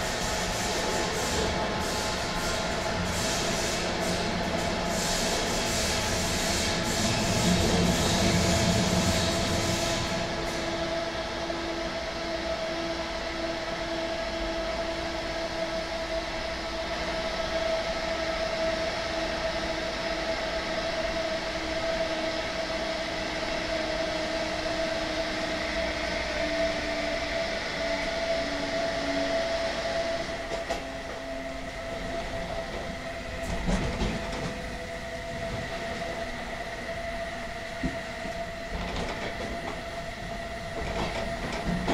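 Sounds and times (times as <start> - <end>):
rumble of train wheels: 0.0 - 41.9.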